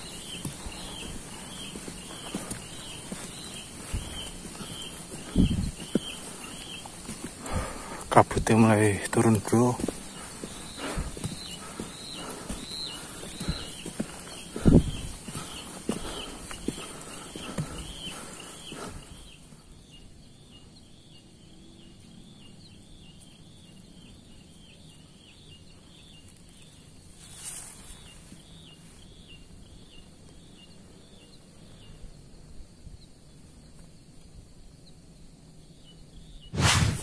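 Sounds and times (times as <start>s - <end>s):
footsteps on trail: 0.0s - 19.6s, 26.4s - 28.9s
brief rush of noise: 36.5s - 37.0s.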